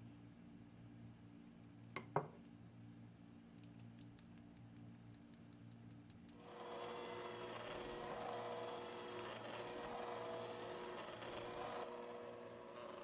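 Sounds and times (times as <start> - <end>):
electric hand mixer running: 6.4 - 13.0.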